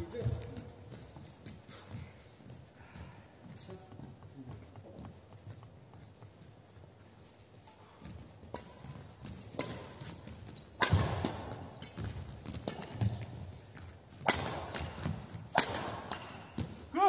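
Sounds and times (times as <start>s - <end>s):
footsteps thudding on court: 0.0s - 17.0s
rackets striking shuttlecock: 7.6s - 16.9s.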